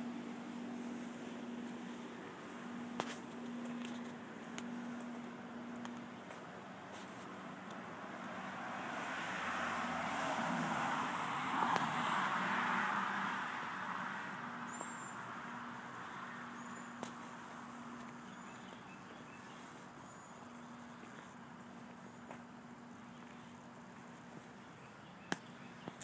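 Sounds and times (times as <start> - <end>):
low hum: 0.0 - 8.7
passing vehicle road noise: 0.0 - 25.8.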